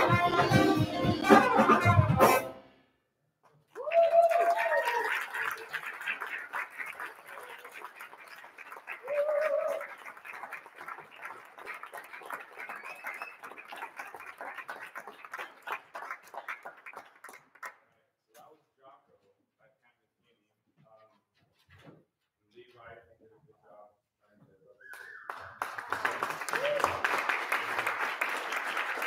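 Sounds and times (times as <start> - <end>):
audience applauding: 3.7 - 17.8, 24.9 - 29.0
loud whoop: 3.8 - 5.3, 9.0 - 10.0, 26.5 - 27.0.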